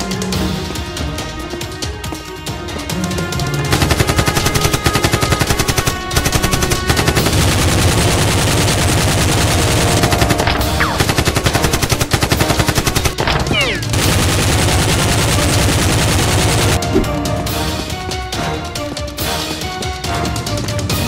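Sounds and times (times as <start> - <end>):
background music: 0.0 - 21.0
rapid automatic gunfire: 3.7 - 16.8.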